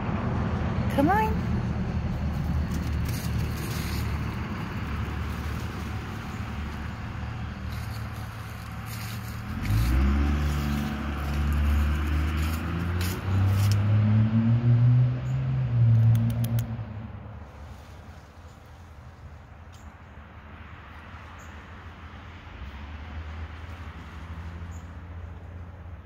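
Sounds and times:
motor engine running: 0.9s - 13.8s
dry leaves crackling: 2.1s - 14.0s, 17.4s - 19.8s, 20.8s - 25.8s.

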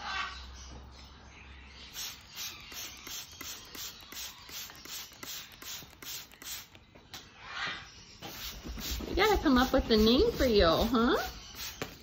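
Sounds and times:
spray bottle squirting water: 1.9s - 6.8s, 8.3s - 12.0s.

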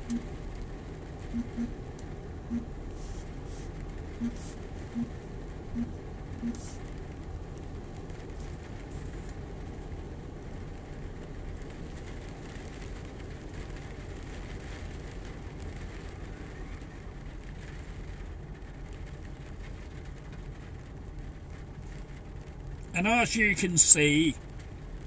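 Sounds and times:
steady rain: 0.0s - 25.0s.

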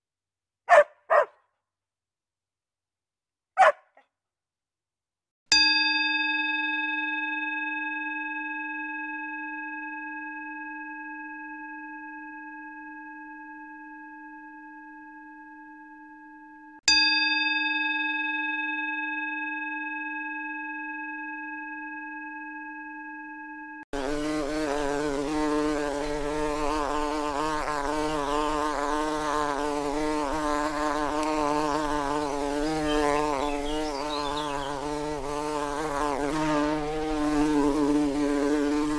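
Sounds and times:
singing bowl ringing: 5.5s - 23.9s.

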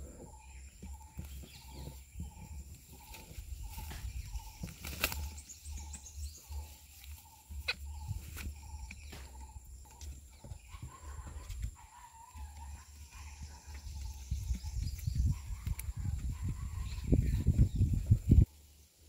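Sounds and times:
bird wings flapping: 3.0s - 5.4s.

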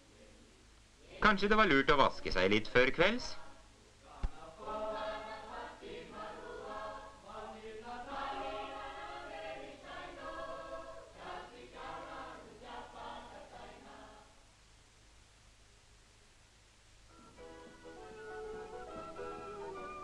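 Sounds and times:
choir singing: 3.1s - 14.4s.

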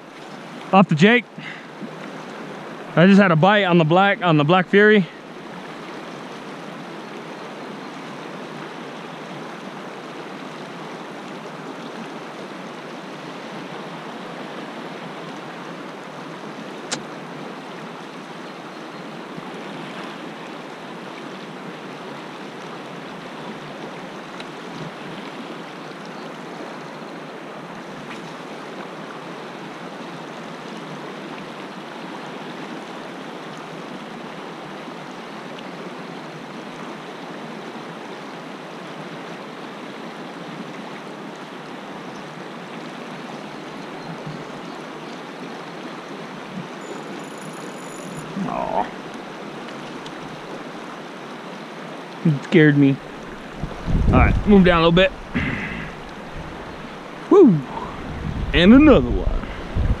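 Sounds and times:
river rushing over rocks: 44.5s - 60.0s.

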